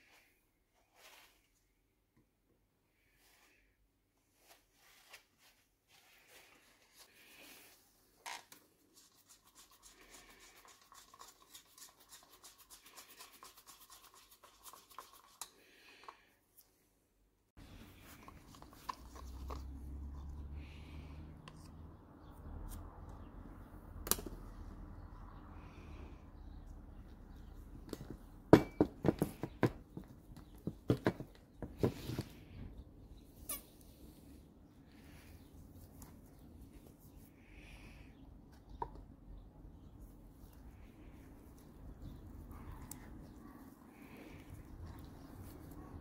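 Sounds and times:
stick stirring liquid in cup: 8.8 - 16.2.

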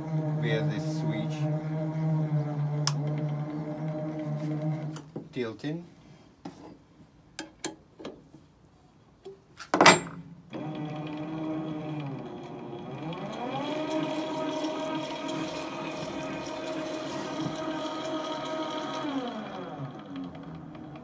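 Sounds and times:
electric gearmotor humming: 0.0 - 5.1, 10.5 - 21.0
loud metal clunk: 9.8 - 10.3.

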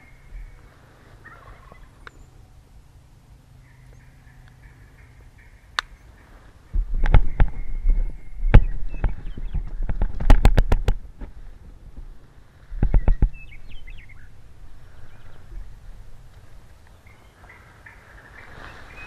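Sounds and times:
faint bird chirps: 0.0 - 2.6, 3.6 - 10.0, 12.8 - 19.0
low thumps: 6.7 - 12.2.

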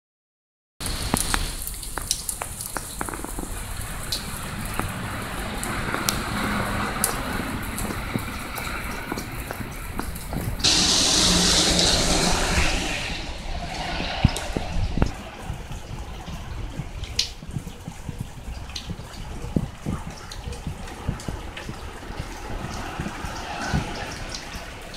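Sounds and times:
sharp drips landing close: 0.8 - 10.7, 14.1 - 24.9
steady rain: 0.8 - 24.9
loud hiss: 10.6 - 15.1.

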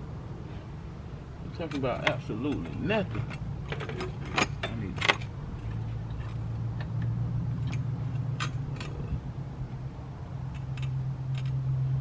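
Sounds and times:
steady low hum: 0.0 - 12.0
metal clicks of hand tools: 1.6 - 9.1, 10.5 - 11.6.

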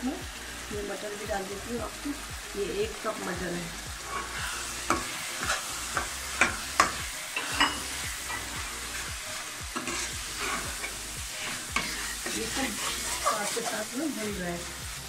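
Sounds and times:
food sizzling in a pan: 0.0 - 15.0
metal spoon scraping and knocking pan: 4.0 - 8.6, 9.8 - 13.9.

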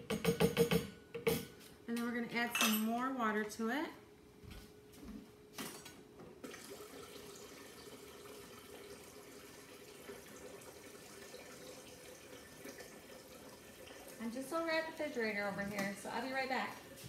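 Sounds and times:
water dispenser filling container: 6.4 - 15.0.

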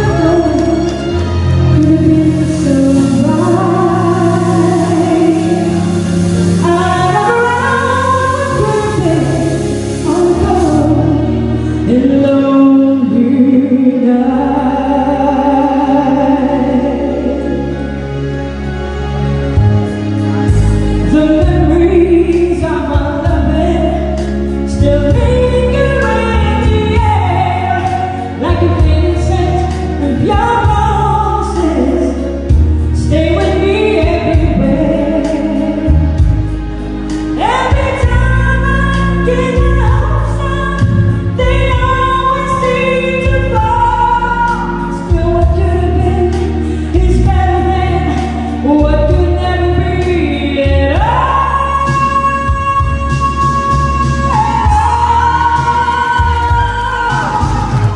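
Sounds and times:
person singing into microphone: 0.0 - 18.0, 21.0 - 36.4, 37.2 - 57.9
instrumental accompaniment: 0.0 - 57.9.

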